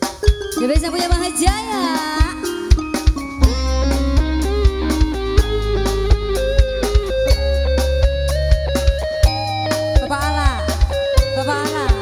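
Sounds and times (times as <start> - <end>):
drum kit beating: 0.0 - 12.0
electric guitar melody: 0.0 - 12.0
heavy bass: 3.2 - 12.0.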